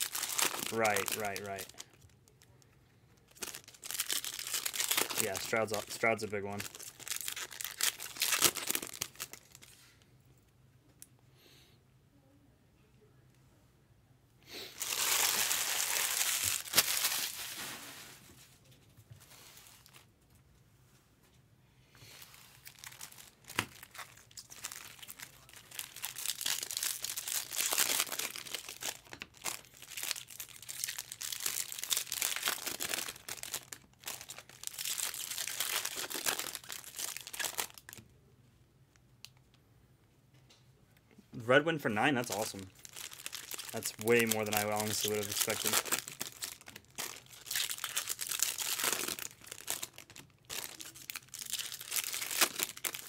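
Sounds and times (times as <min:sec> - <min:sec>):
wrappers crinkling and tearing: 0:00.0 - 0:02.4, 0:03.2 - 0:09.8, 0:14.7 - 0:18.1, 0:22.1 - 0:38.0, 0:42.2 - 0:53.0.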